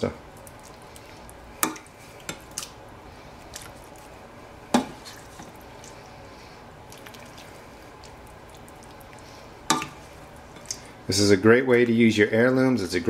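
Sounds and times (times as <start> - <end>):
wet plops of sauce: 0.3 - 2.8, 6.8 - 11.0.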